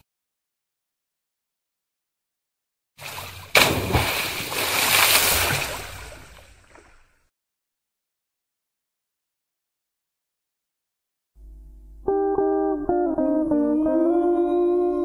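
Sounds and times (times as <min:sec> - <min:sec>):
water pouring and splashing: 0:03.0 - 0:07.2.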